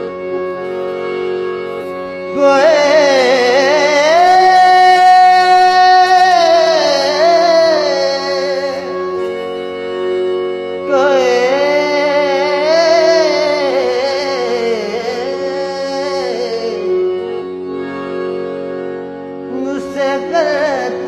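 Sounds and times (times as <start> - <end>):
harmonium: 0.0 - 21.0
man singing: 2.3 - 9.3, 10.8 - 17.1, 19.5 - 21.0.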